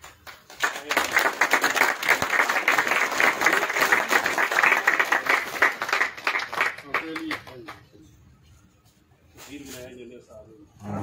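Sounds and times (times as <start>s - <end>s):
crowd applauding: 0.0s - 7.8s.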